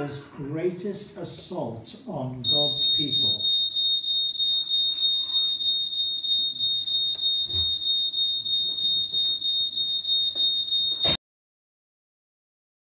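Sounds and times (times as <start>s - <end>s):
pulsing high-pitched electronic tone: 4.3s - 9.0s.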